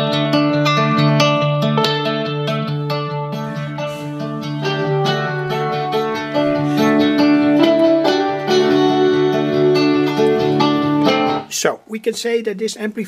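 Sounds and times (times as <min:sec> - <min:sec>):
guitar music through loudspeaker: 0:00.0 - 0:11.5.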